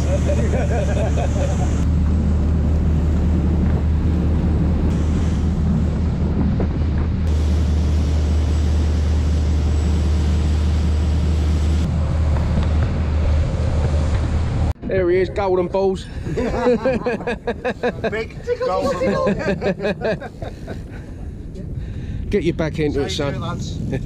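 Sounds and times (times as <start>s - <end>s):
boat engine droning: 0.0s - 14.8s
wind and water rushing: 0.0s - 23.9s.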